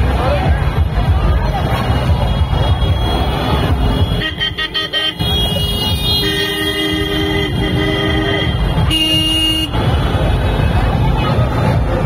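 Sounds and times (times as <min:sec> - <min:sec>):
engine and traffic rumble: 0:00.0 - 0:12.0
vehicle horns honking: 0:02.2 - 0:09.9.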